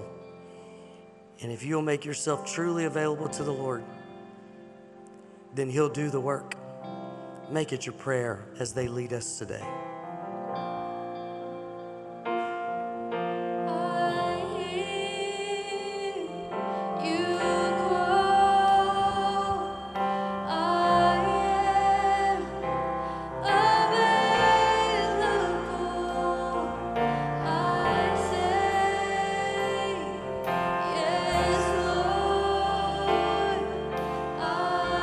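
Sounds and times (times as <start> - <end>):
person singing long notes: 13.7 - 35.0
sustained chords: 13.7 - 35.0.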